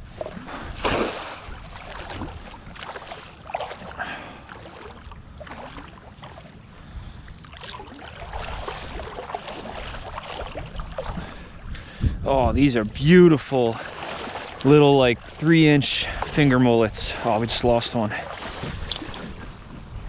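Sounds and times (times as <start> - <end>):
net hauled through water: 0.0 - 11.7, 12.4 - 20.0
cast net splashing into water: 0.2 - 6.4, 7.5 - 11.2, 13.7 - 14.7.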